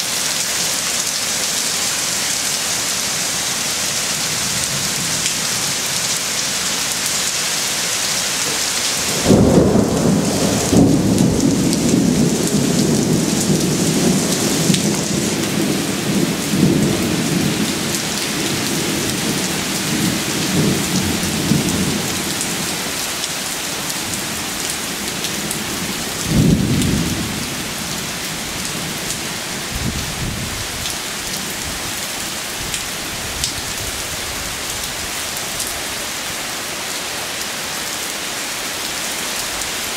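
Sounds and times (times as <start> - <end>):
heavy rain: 0.0 - 39.9
thunder rumbling: 9.0 - 22.8, 25.4 - 29.0, 29.6 - 30.8.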